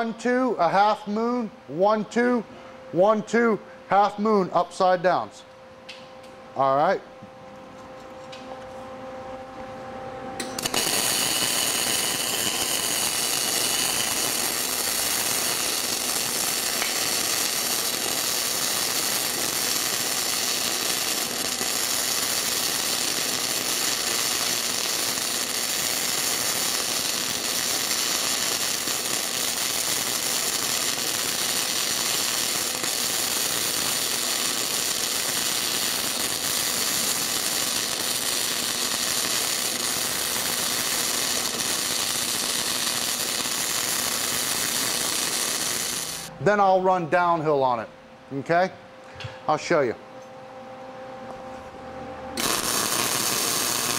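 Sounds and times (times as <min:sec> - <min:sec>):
welding arc with spatter: 0:10.4 - 0:46.3, 0:52.4 - 0:53.9.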